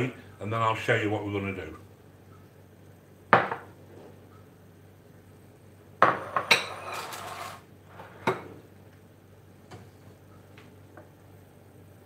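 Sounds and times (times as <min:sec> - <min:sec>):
ceramic bowls knocking on wood: 0:03.4 - 0:03.7
ceramic bowls clattering: 0:06.0 - 0:07.6.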